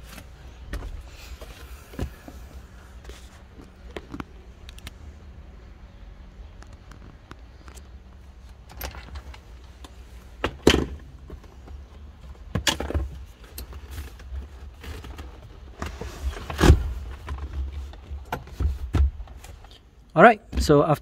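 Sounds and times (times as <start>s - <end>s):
car seat clunks and rattles: 15.9s - 19.4s.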